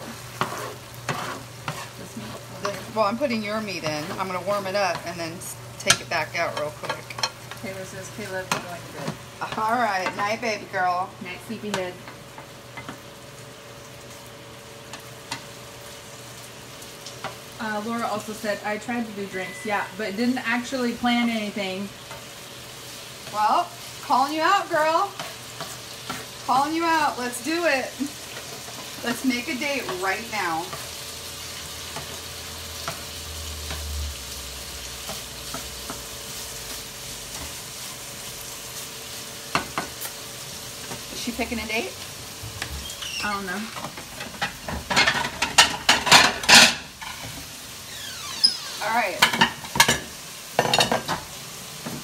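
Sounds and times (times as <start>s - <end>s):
utensil scraping a pan: 0.0s - 5.1s, 24.7s - 27.6s
food sizzling in a skillet: 0.0s - 52.0s.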